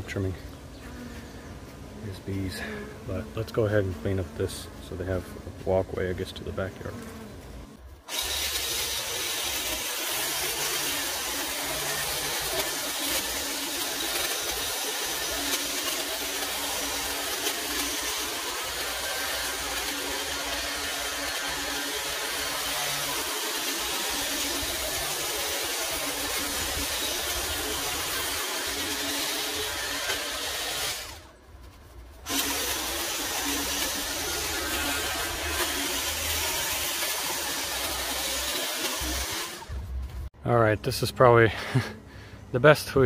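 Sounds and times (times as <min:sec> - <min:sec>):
hedge trimmer running: 0:00.0 - 0:31.4, 0:32.1 - 0:40.1.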